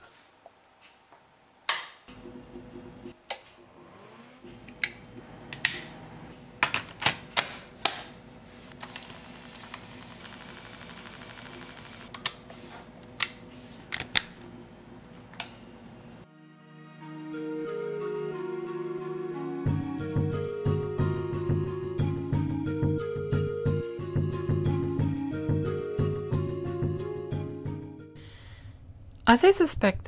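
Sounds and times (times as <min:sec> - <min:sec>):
faint electrical hum: 0:04.4 - 0:16.3.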